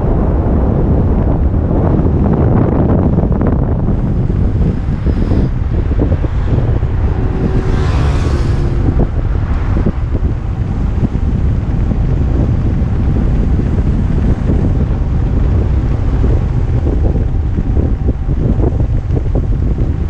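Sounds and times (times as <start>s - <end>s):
wind buffeting microphone: 0.0s - 20.0s
vehicle passing: 3.8s - 18.4s.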